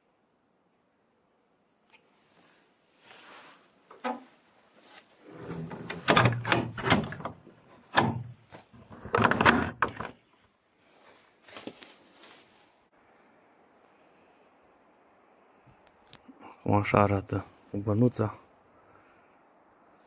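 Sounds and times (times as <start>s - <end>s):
wooden door knocks and scrapes: 5.5s - 10.1s
sharp door clicks: 5.8s - 8.4s, 9.0s - 10.2s.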